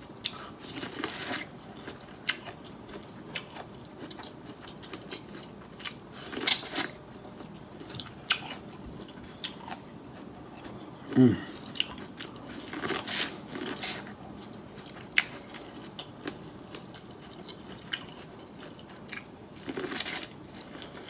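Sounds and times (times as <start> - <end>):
person crunching corn: 7.8 - 14.2, 14.8 - 21.0.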